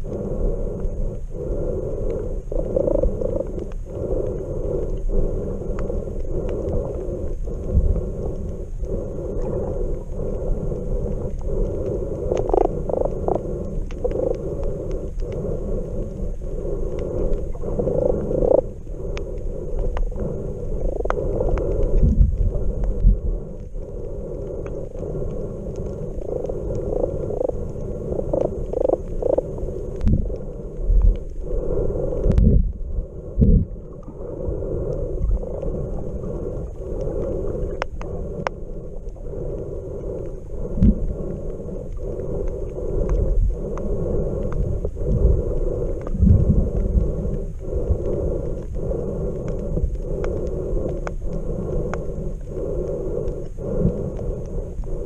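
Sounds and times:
underwater rumble of water: 0.0s - 55.0s.

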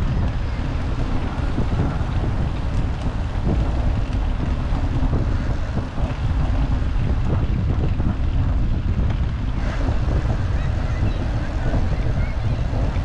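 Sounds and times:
bicycle tyres rumbling: 0.0s - 13.0s
wind buffeting microphone: 0.0s - 13.0s.

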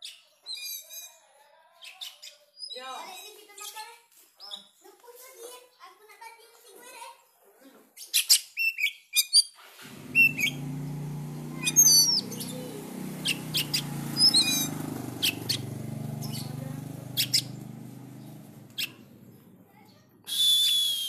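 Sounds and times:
bird singing whistled phrases: 10.1s - 10.6s, 11.6s - 15.6s, 17.1s - 17.6s, 20.2s - 21.0s.

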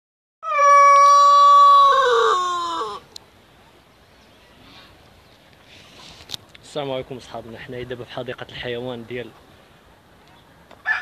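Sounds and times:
rooster crowing: 0.4s - 3.0s.

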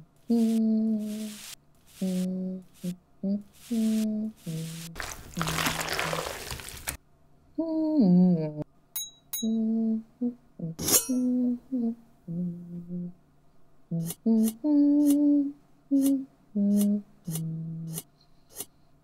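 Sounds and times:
person humming a tune: 0.0s - 5.7s, 7.6s - 8.7s, 9.4s - 13.2s, 13.9s - 18.1s.

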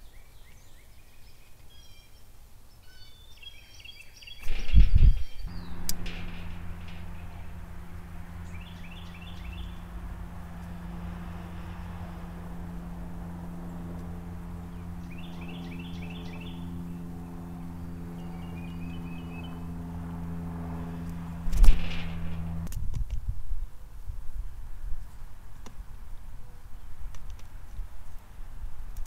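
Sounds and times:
bird trill: 2.8s - 21.2s
low engine-like hum: 2.9s - 29.0s
thump on metal feeder: 4.5s - 13.2s, 21.4s - 22.7s
songbird whistling notes: 8.4s - 9.8s, 15.0s - 17.1s, 17.8s - 19.7s.

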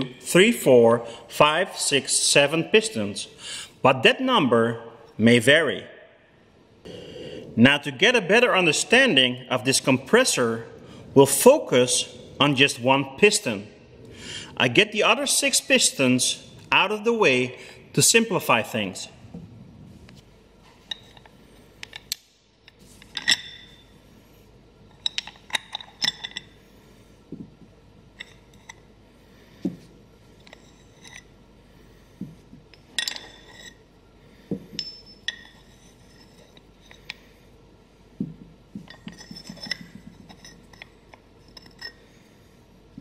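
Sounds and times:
metal pistons clinking: 20.8s - 24.0s, 24.9s - 26.7s, 32.7s - 33.8s, 34.6s - 37.2s, 38.8s - 42.1s.

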